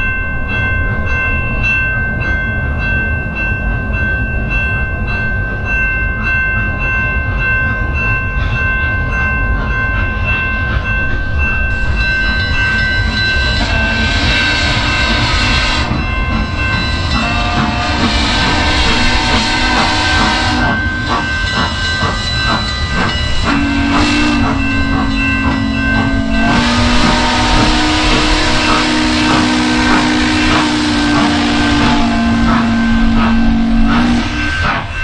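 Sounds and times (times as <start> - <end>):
steam locomotive chuffing and hiss: 8.3 - 35.0
two-note steam whistle: 12.2 - 35.0.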